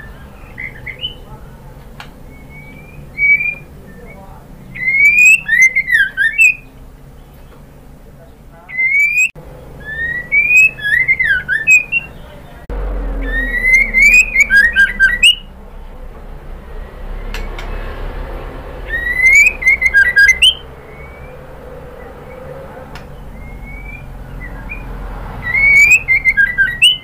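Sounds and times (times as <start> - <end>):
bird whistling phrases: 0.0 - 1.4, 2.2 - 7.6, 8.7 - 12.6, 13.2 - 15.5, 18.8 - 27.0.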